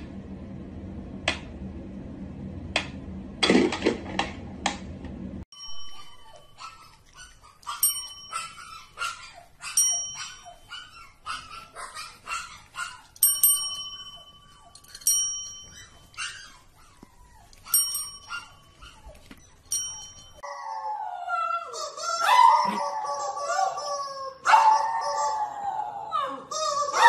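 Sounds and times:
desk call bell dings: 5.6s - 6.9s, 7.7s - 9.0s, 9.8s - 11.0s, 13.2s - 16.2s, 17.7s - 20.4s.

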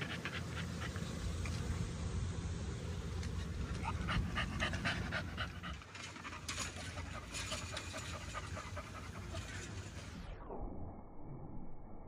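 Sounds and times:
dog panting: 0.0s - 1.2s, 3.6s - 9.8s.

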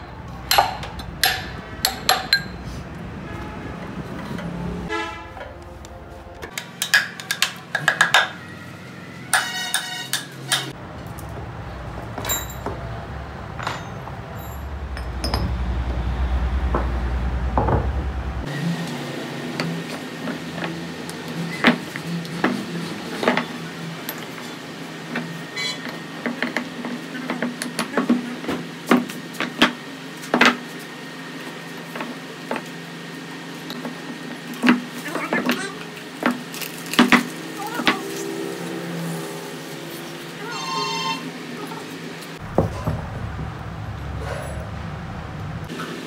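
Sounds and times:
metal parts and tools clinking: 0.5s - 2.7s, 9.3s - 10.7s, 12.2s - 12.9s, 13.6s - 15.7s
steady low hum: 42.4s - 45.7s.

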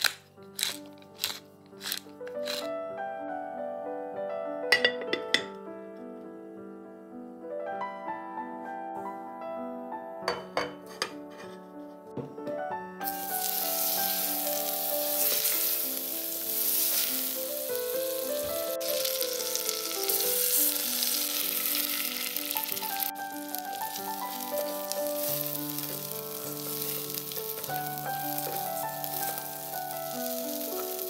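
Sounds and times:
background music: 0.0s - 31.0s
food sizzling in pan: 0.6s - 2.6s, 13.0s - 31.0s.

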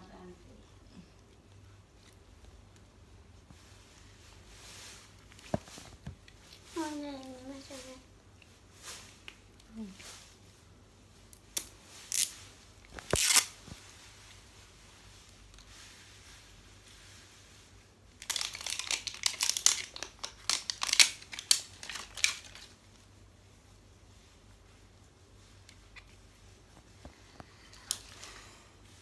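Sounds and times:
wrapping being torn by hand: 11.5s - 13.6s, 18.2s - 22.8s
wrapper crinkling: 12.9s - 13.6s, 18.2s - 22.9s.

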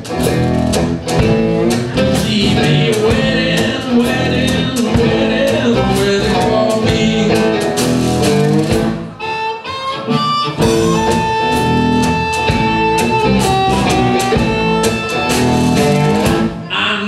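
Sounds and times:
strummed cigar box guitar: 0.0s - 16.7s
amplified blues harmonica: 9.1s - 16.4s.

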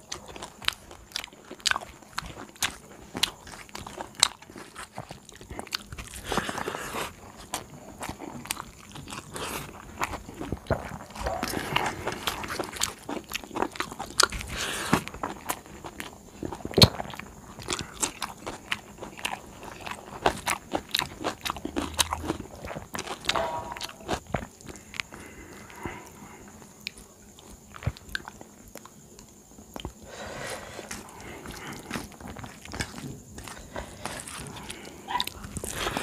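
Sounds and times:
chewing and crunching: 0.0s - 36.0s.

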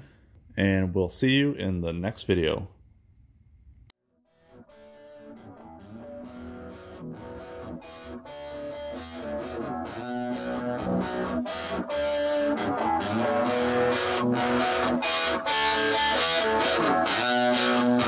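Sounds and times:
distorted electric guitar music: 4.3s - 18.0s.

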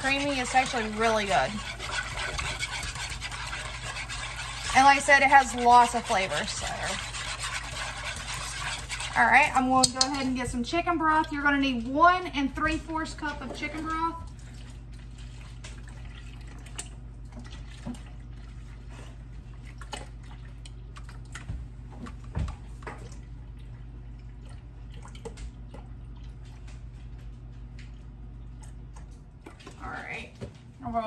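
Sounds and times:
steady low hum: 0.0s - 31.0s
liquid drips and plops: 13.4s - 29.8s.

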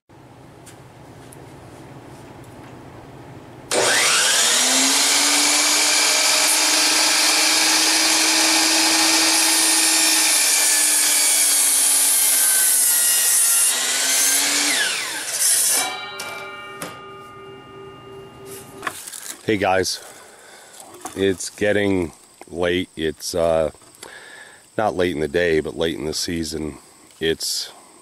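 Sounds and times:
miter saw cutting wood: 3.7s - 17.0s.

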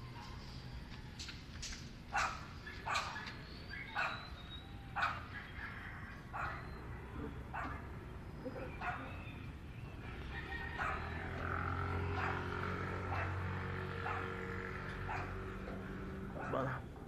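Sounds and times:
dog barking: 2.1s - 3.3s, 3.9s - 4.2s, 5.0s - 5.6s, 6.4s - 6.8s, 7.5s - 7.9s, 8.6s - 9.2s, 10.8s - 11.2s, 12.1s - 14.4s, 15.0s - 15.4s, 16.4s - 16.8s.

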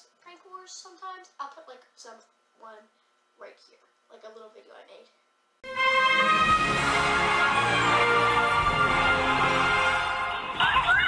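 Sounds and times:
theme tune with long held notes: 5.6s - 11.0s.

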